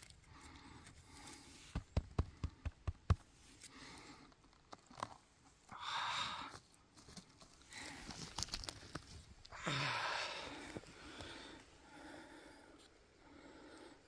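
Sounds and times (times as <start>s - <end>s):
sharp taps and knocks: 1.7s - 3.3s.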